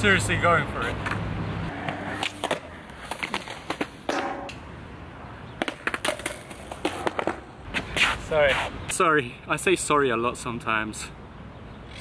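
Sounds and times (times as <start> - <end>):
skateboard clacking on concrete: 5.6 - 8.1.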